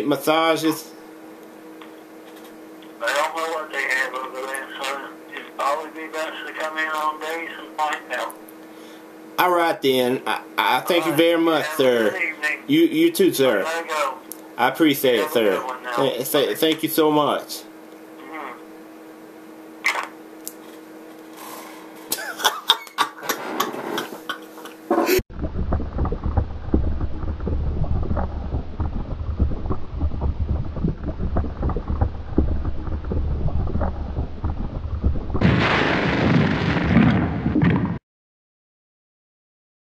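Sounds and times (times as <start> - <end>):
faint steady hum: 0.0 - 36.8
low crackling rumble: 25.3 - 38.0.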